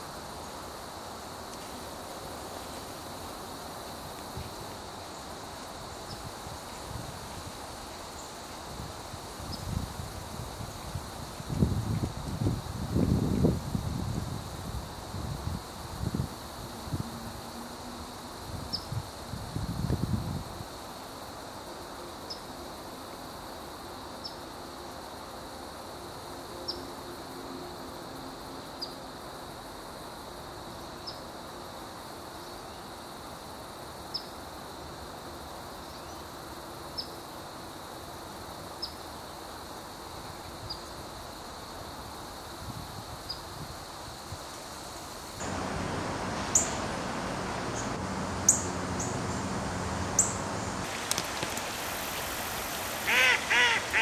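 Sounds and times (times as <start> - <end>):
high-pitched insect drone: 45.4 - 50.9
noisy background: 45.4 - 51.1.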